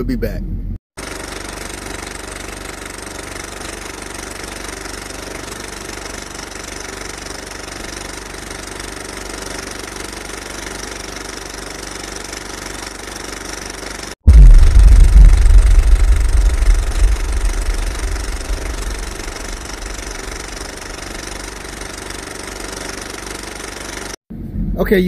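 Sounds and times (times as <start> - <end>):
diesel truck engine running: 14.3 - 22.1.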